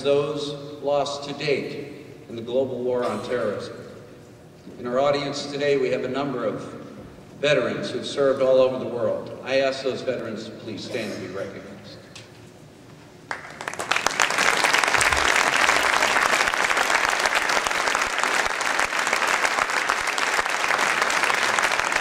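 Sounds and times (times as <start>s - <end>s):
audience clapping: 13.2s - 22.0s.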